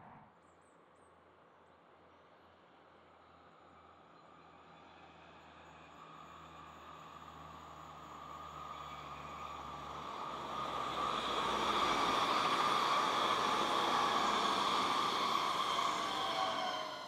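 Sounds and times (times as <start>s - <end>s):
train whine: 7.9s - 17.0s
train wheels rushing on rail: 8.5s - 17.0s.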